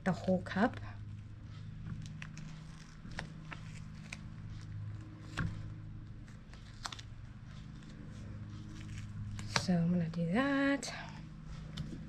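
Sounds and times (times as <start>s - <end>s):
steady low hum: 0.0s - 12.0s
tape rustling on foam: 1.0s - 9.6s
sharp clicks and crinkles: 1.8s - 5.6s.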